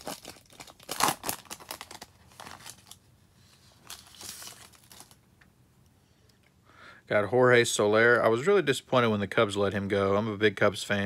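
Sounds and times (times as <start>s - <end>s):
foil wrapper crinkling and tearing: 0.0s - 3.1s, 3.8s - 5.2s.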